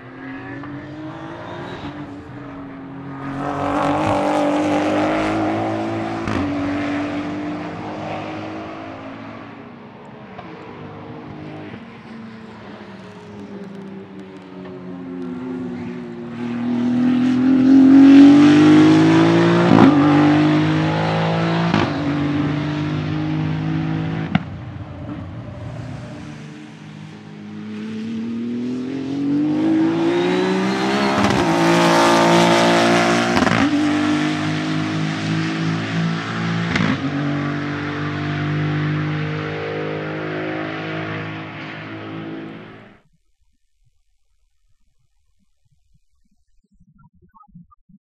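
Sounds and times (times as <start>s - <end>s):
car engine accelerating hard: 11.2s - 43.0s.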